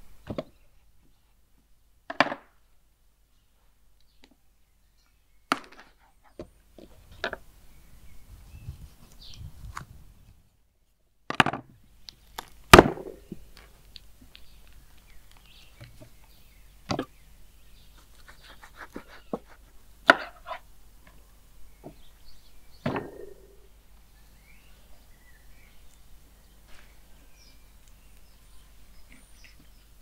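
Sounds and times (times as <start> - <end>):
faint bird chirps: 14.3 - 20.6, 21.5 - 30.0.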